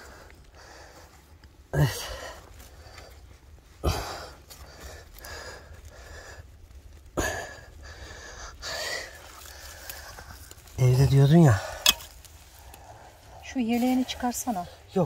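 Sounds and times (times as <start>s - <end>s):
hard breathing: 0.0s - 15.0s
hand tool breaking rock: 11.8s - 12.1s.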